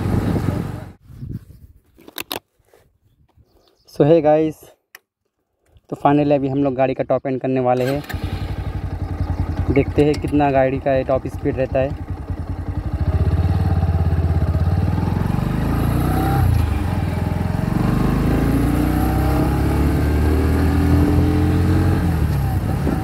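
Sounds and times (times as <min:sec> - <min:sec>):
motorcycle engine at full throttle: 0:00.0 - 0:01.0, 0:08.0 - 0:23.0.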